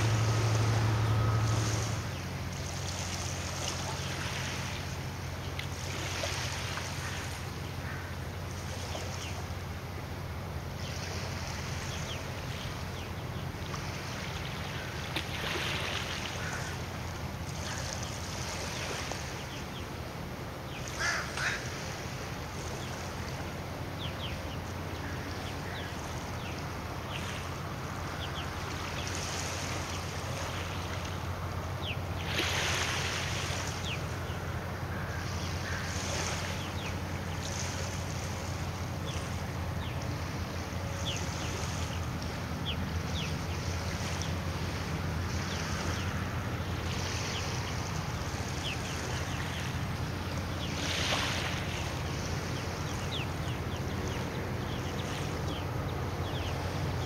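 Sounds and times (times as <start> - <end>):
ferry engines droning: 0.0 - 57.0
water noise: 0.0 - 57.0
wind: 0.0 - 57.0
bird calls: 11.8 - 20.0, 20.6 - 57.0.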